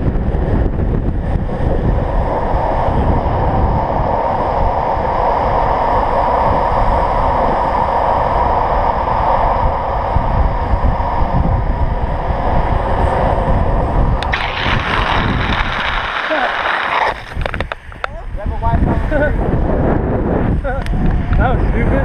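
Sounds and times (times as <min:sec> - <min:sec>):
longboard wheels rumbling: 0:00.0 - 0:22.0
wind buffeting microphone: 0:00.0 - 0:22.0
scraping hiss: 0:14.2 - 0:18.1.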